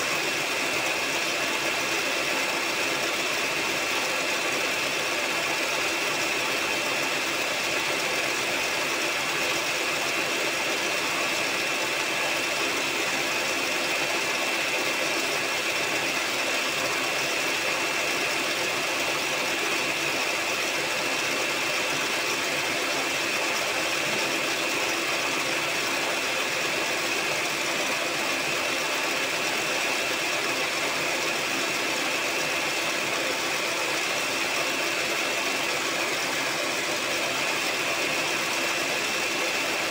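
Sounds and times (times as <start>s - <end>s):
electric hand mixer whisking: 0.0s - 39.9s.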